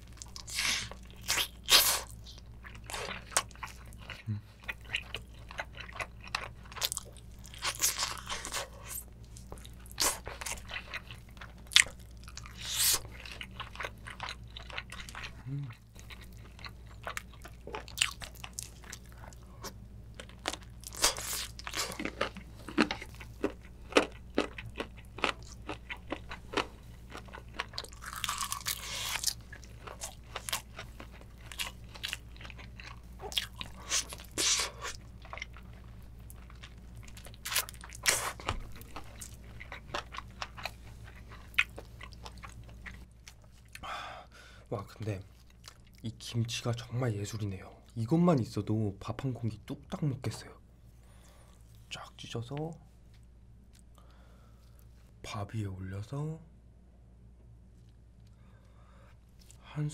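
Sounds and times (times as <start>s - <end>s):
close-miked chewing: 0.0s - 43.9s.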